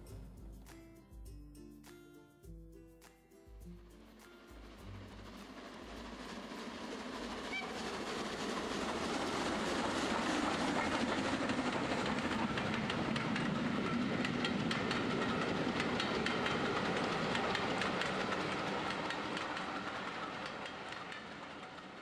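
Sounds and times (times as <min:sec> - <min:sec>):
model train running: 0:03.8 - 0:22.0
wheels clicking over rail joints: 0:05.8 - 0:22.0.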